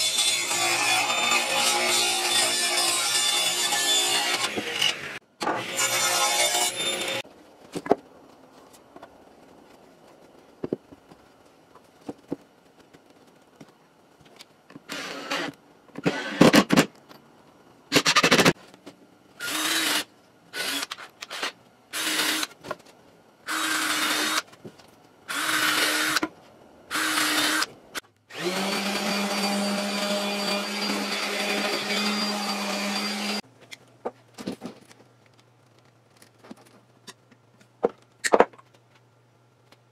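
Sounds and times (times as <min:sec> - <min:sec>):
cordless drill boring into wood: 0:19.4 - 0:20.0, 0:28.3 - 0:33.4.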